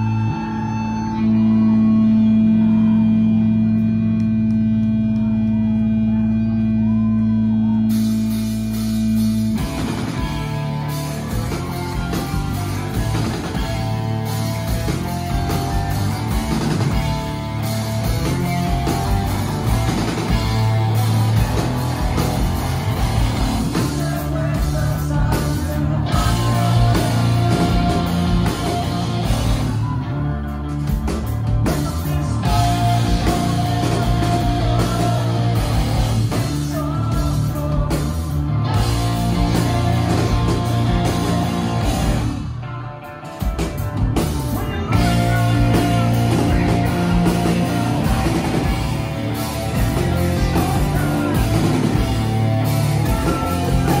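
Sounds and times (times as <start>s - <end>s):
live band playing loud: 0.0s - 54.0s
person singing: 17.1s - 42.2s, 44.3s - 54.0s.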